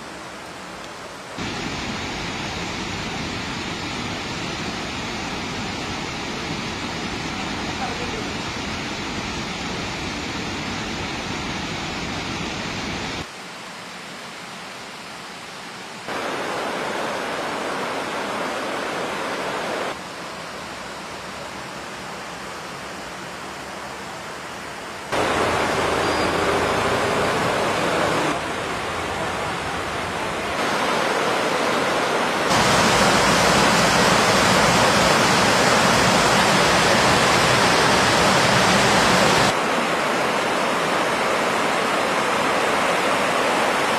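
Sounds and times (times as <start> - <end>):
water rushing down spillway: 16.1 - 43.9.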